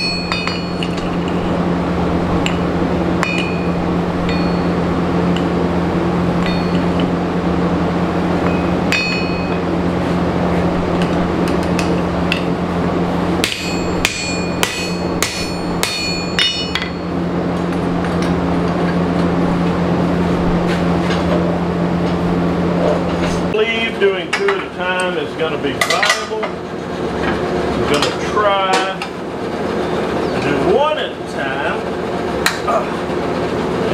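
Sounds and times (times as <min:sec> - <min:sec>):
ringing strikes on steel: 0:00.0 - 0:01.2, 0:03.2 - 0:05.6, 0:06.3 - 0:07.2, 0:08.4 - 0:09.7, 0:13.4 - 0:17.2
forge humming: 0:00.0 - 0:33.9.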